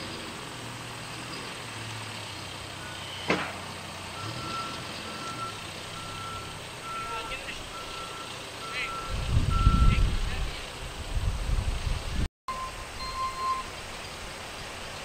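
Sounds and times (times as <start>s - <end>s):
diesel engine hum: 0.0s - 15.0s
backup alarm beeping: 4.2s - 10.0s, 12.5s - 13.7s.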